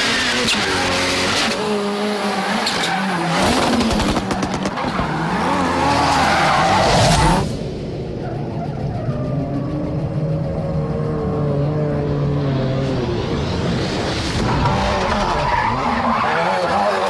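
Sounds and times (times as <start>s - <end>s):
tyres squealing and skidding: 2.2s - 7.4s, 14.4s - 17.0s.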